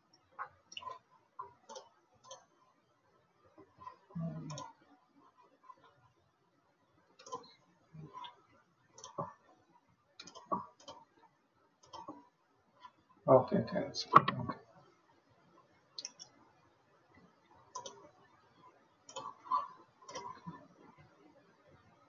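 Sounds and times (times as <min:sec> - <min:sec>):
computer mouse clicks: 0:00.4 - 0:02.5, 0:03.7 - 0:04.8, 0:07.2 - 0:08.4, 0:09.0 - 0:09.5, 0:10.2 - 0:11.2, 0:11.8 - 0:12.3, 0:14.1 - 0:14.6, 0:16.0 - 0:16.4, 0:17.7 - 0:18.2, 0:19.0 - 0:21.1.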